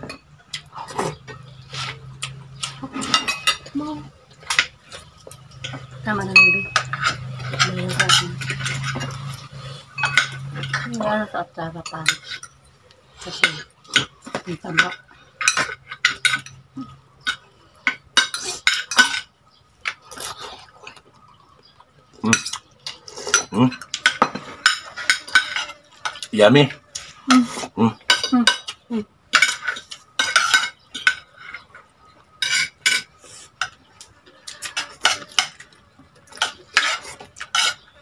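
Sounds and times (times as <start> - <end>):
cutlery clinking on a plate: 2.2 - 3.7, 4.3 - 11.1, 13.3 - 20.3, 22.3 - 26.3, 28.0 - 31.8, 32.4 - 33.8, 34.4 - 38.0.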